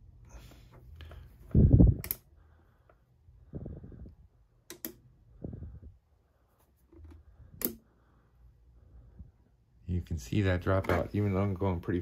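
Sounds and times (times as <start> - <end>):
toggle switch clicks: 4.6 - 5.0.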